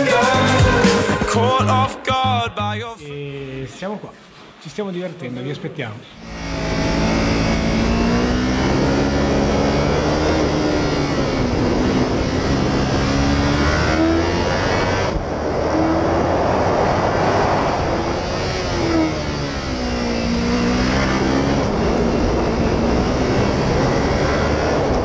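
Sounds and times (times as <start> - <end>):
motorcycle engine revving: 6.2 - 25.0
wind rush: 14.8 - 25.0.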